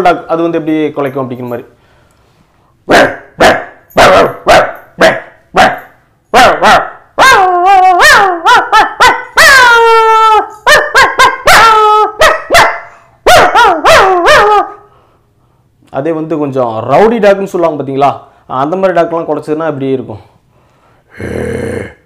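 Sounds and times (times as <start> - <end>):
man imitating dog barks: 2.9 - 14.8.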